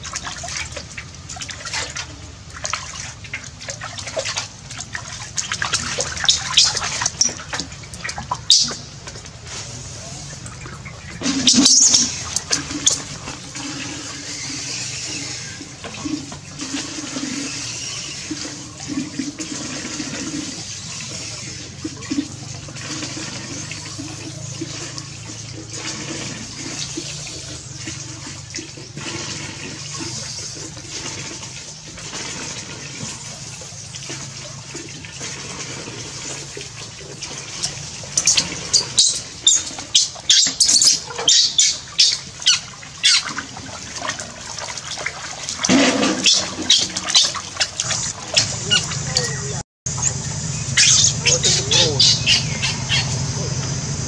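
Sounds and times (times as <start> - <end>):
water splashing in plastic basin: 0.0 - 53.8
baby monkey shrill cries: 50.8 - 53.1.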